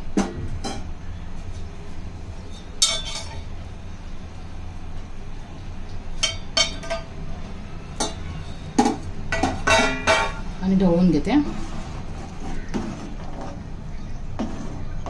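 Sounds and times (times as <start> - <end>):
steady low hum: 0.0 - 15.0
metal utensils clinking on a pot: 2.5 - 3.5, 6.2 - 7.2, 8.0 - 8.3, 9.3 - 10.4.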